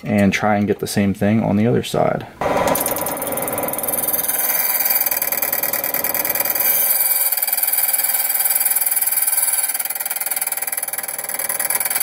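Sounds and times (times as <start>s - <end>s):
motor whine: 2.4s - 8.4s
key cutting machine grinding: 2.4s - 8.5s.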